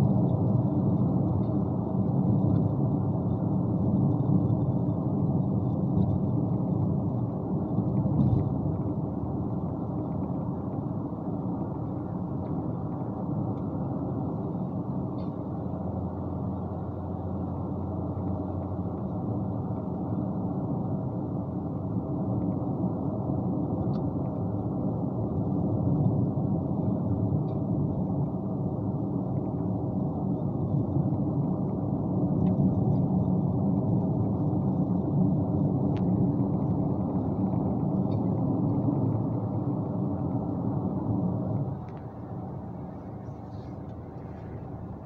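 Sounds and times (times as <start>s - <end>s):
vehicle engine and road rumble: 0.0s - 45.0s
faint clicks: 41.8s - 42.2s.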